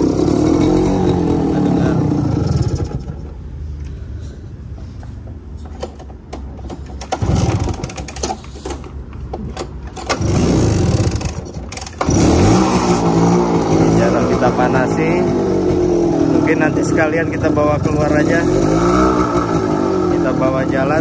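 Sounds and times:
motorcycle throttle revving: 0:00.0 - 0:03.6, 0:06.6 - 0:08.9, 0:09.9 - 0:21.0
motorcycle engine idling: 0:00.0 - 0:03.8.

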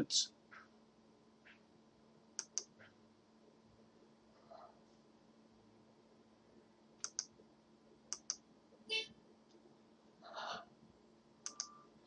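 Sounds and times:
computer mouse clicking: 0:02.4 - 0:02.8, 0:07.0 - 0:07.3, 0:08.1 - 0:08.4, 0:11.4 - 0:11.7.

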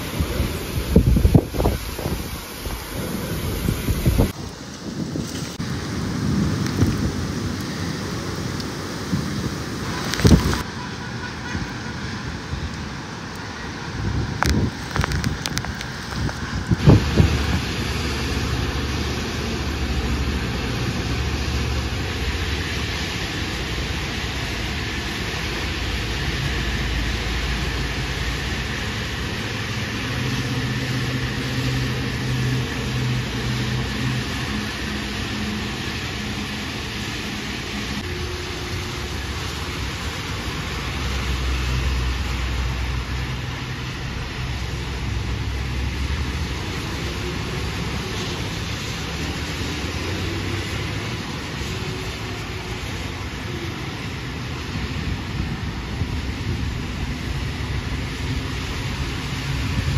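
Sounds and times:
tyres hissing on wet road: 0:00.0 - 0:59.9
louder engine hum: 0:16.4 - 0:59.9.

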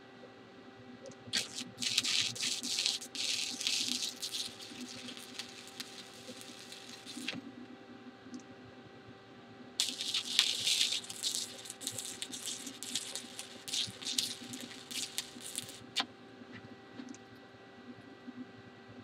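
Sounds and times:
welding arc crackling: 0:01.3 - 0:07.4, 0:09.8 - 0:16.0.

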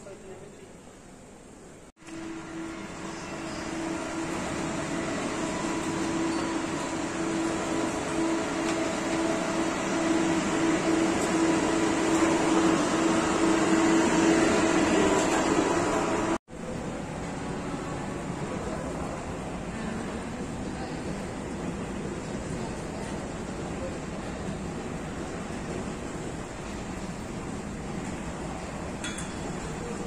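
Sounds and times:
electric train humming: 0:02.0 - 0:30.0.

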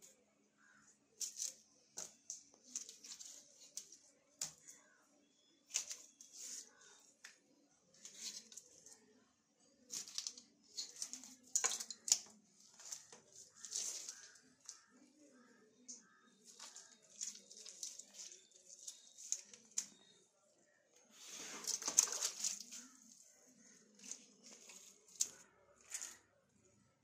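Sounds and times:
wet scraping: 0:21.1 - 0:26.3.

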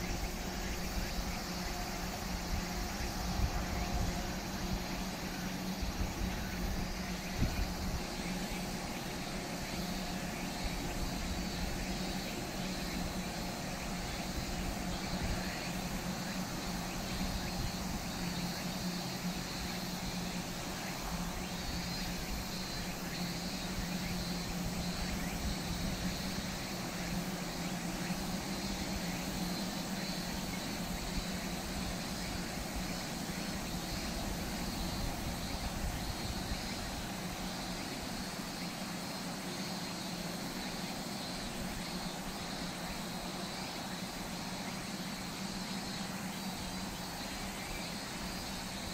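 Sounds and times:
wind rumble on microphone: 0:00.0 - 0:09.6
constant low hum: 0:00.0 - 0:48.9.

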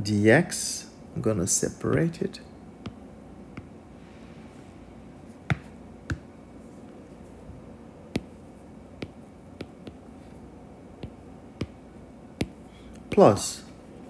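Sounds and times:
faint room hiss: 0:00.0 - 0:14.0
stylus tapping on glass screen: 0:05.5 - 0:06.3, 0:08.2 - 0:08.4, 0:09.0 - 0:10.0, 0:11.0 - 0:11.8, 0:12.4 - 0:13.3.

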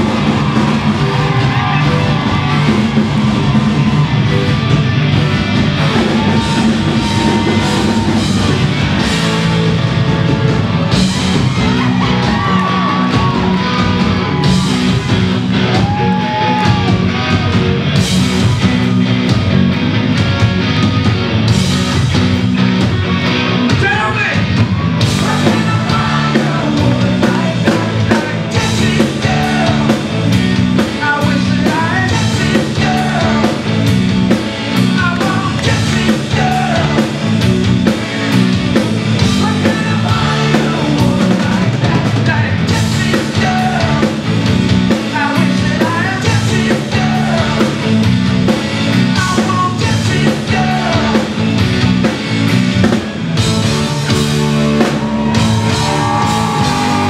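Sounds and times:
live rock band playing: 0:00.0 - 0:57.0
man singing lead vocal: 0:25.1 - 0:33.8, 0:34.9 - 0:37.4, 0:39.2 - 0:48.0, 0:49.0 - 0:51.6.

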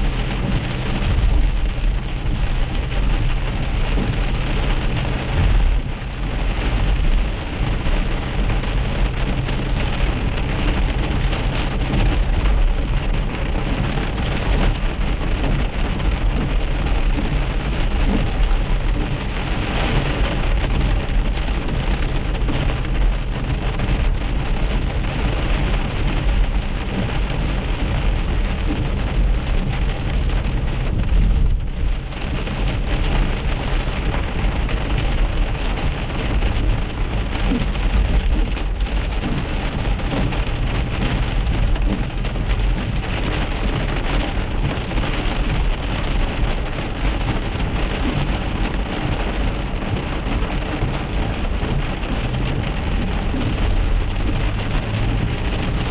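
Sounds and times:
hail and rain on car roof: 0:00.0 - 0:55.9
low rumble: 0:00.0 - 0:55.9.

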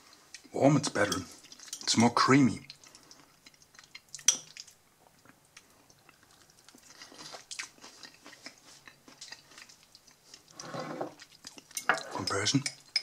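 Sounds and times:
person chewing wetly: 0:01.2 - 0:02.0, 0:02.6 - 0:12.1.

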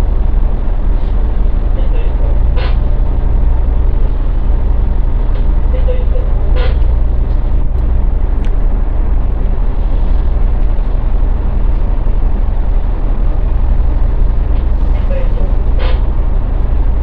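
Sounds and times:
ship diesel engines humming: 0:00.0 - 0:17.0.

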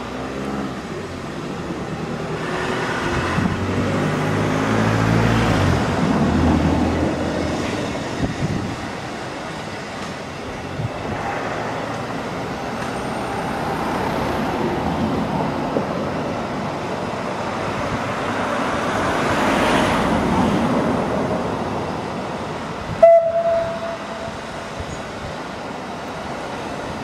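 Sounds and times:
rushing noise: 0:00.0 - 0:27.0
steam locomotive whistle blast: 0:23.0 - 0:24.4.

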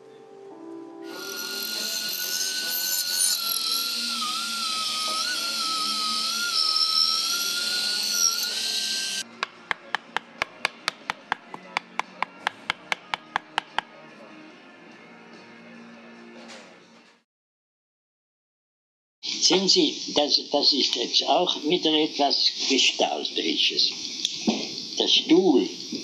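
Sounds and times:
power tool whining: 0:01.0 - 0:10.9.

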